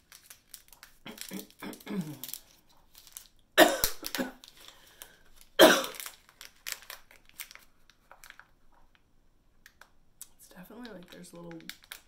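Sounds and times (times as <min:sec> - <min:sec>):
plastic pouch crinkling: 0:00.0 - 0:12.0
person coughing: 0:01.1 - 0:02.2, 0:03.6 - 0:04.4, 0:05.6 - 0:06.0.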